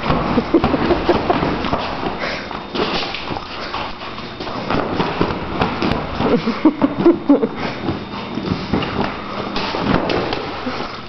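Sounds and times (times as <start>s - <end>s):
dog batting plastic beach ball: 7.8s - 10.6s.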